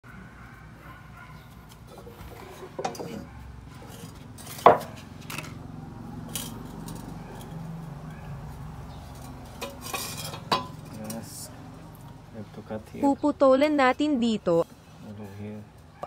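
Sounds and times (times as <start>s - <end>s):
metal knocks and clinks on concrete: 3.8s - 5.5s, 6.3s - 7.6s, 9.1s - 11.3s.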